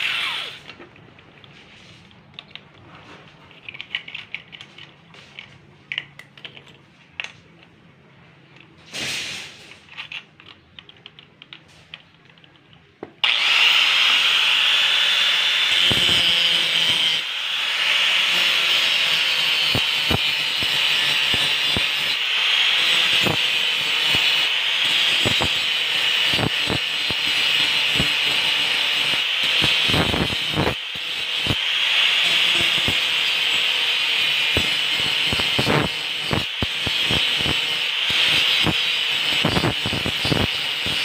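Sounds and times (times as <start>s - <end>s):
angle grinder grinding steel: 0.0s - 0.8s, 13.2s - 41.0s
clicking and handling: 0.6s - 7.8s, 9.7s - 13.3s.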